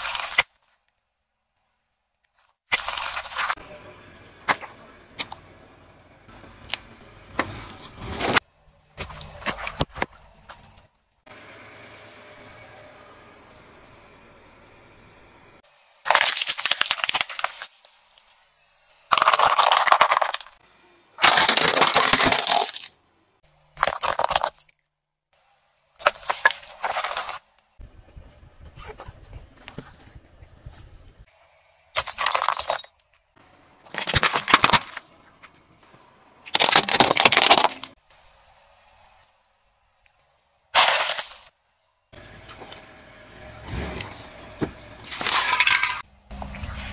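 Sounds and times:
objects crunching under car tyre: 0:06.7 - 0:10.8, 0:19.1 - 0:20.6, 0:21.2 - 0:23.0, 0:33.8 - 0:35.6, 0:36.4 - 0:38.0, 0:40.8 - 0:41.5.

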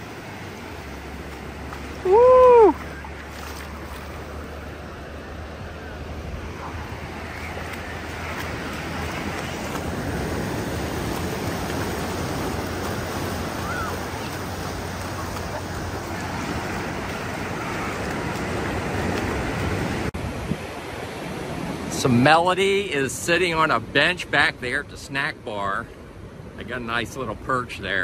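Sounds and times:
surf washing up beach: 0:00.0 - 0:28.0
wind rumble on microphone: 0:01.0 - 0:21.8.

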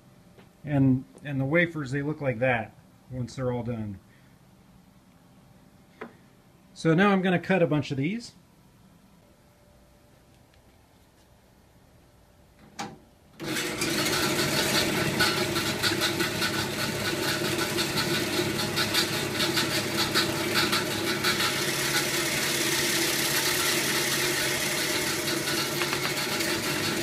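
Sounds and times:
bandsaw running: 0:13.4 - 0:27.0
bandsaw blade cutting plastic rod: 0:14.1 - 0:27.0.

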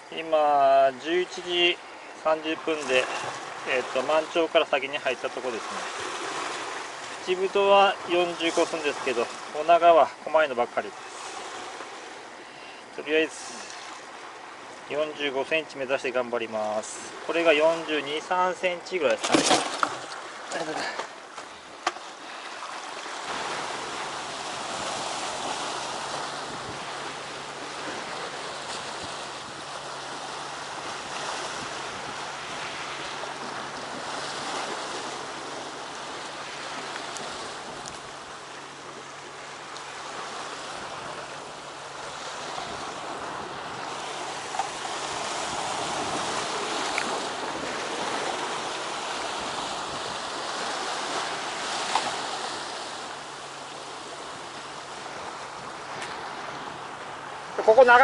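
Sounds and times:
surf breaking on rocks: 0:16.8 - 0:38.2, 0:39.8 - 0:56.6, 0:57.5 - 0:58.0.

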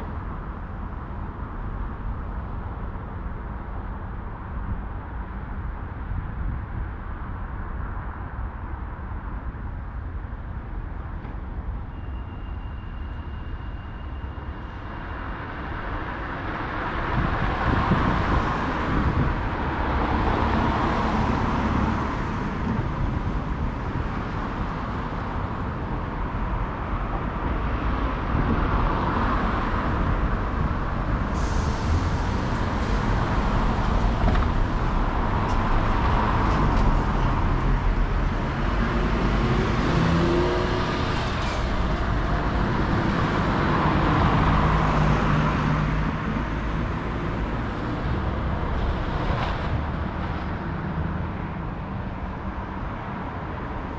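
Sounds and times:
steady traffic rumble: 0:00.0 - 0:53.9
cars passing: 0:13.2 - 0:53.9.

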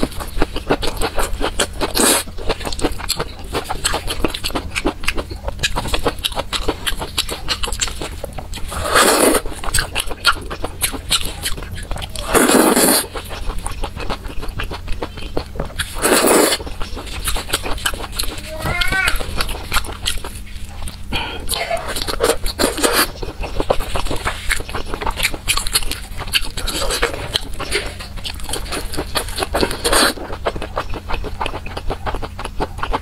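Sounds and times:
wet chewing and lip-smacking: 0:00.0 - 0:33.0
wet slurping: 0:08.6 - 0:14.7, 0:15.3 - 0:20.4.

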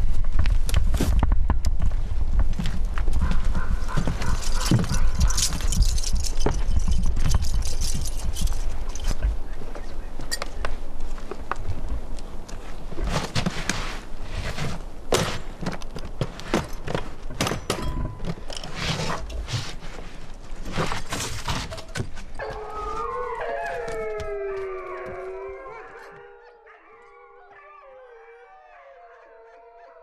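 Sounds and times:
clothes rustling: 0:01.9 - 0:24.2
suitcase clicks and knocks: 0:02.5 - 0:09.2, 0:15.1 - 0:19.8.

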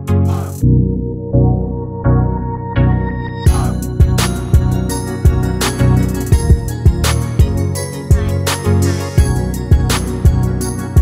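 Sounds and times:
sustained instrumental notes: 0:00.6 - 0:11.0
steady drum beat: 0:03.5 - 0:11.0.

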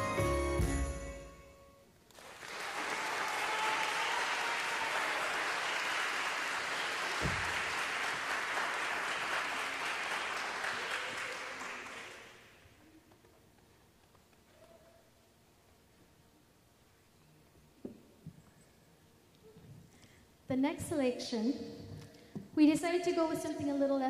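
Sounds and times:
audience applause: 0:02.1 - 0:12.6
low thump: 0:07.2 - 0:07.6.

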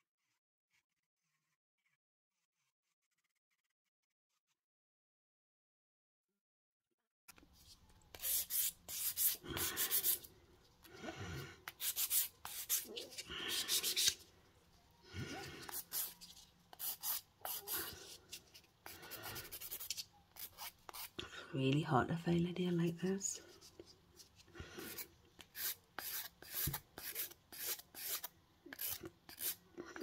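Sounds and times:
nail file rasping: 0:11.6 - 0:14.2, 0:15.6 - 0:18.1, 0:18.9 - 0:21.2, 0:24.8 - 0:30.0.

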